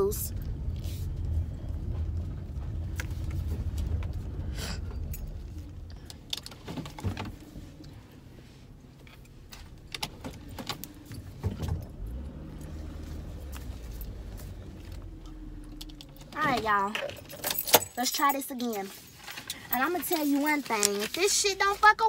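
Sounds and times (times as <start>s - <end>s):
car engine and road rumble: 0.0s - 22.0s
keys jangling: 17.0s - 21.1s.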